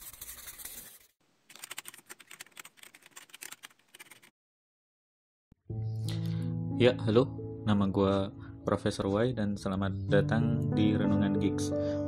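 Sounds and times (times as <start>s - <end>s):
pen scratching: 0.0s - 4.3s
fast keyboard typing: 1.5s - 4.3s.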